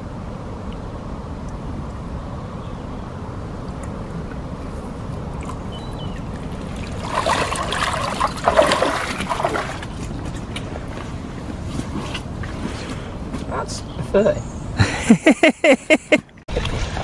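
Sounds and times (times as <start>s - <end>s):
water splashing off landing net: 6.4s - 10.2s, 16.5s - 17.0s.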